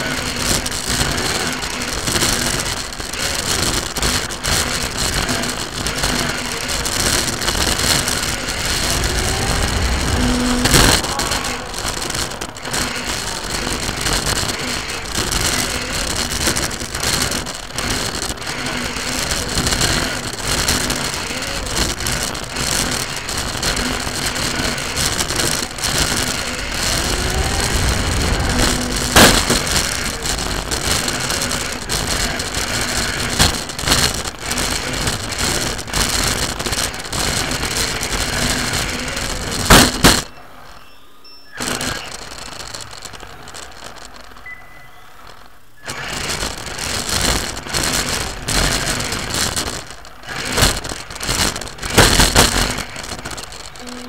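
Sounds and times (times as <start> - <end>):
rc car chassis rattling: 0.0 - 54.0
motor whine: 4.7 - 35.4.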